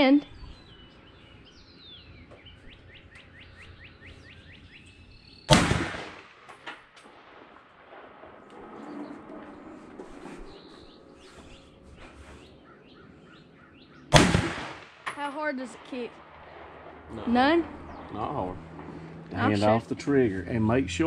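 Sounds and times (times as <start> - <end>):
bird chirping: 0.0 - 5.6, 8.8 - 14.2, 17.0 - 21.0
rifle shot with echo: 5.5 - 10.7, 14.1 - 19.2.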